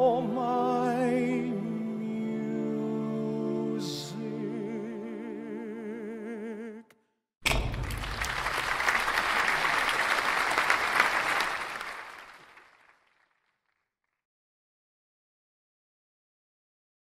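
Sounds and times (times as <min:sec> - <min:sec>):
audience applauding: 0:07.7 - 0:13.3.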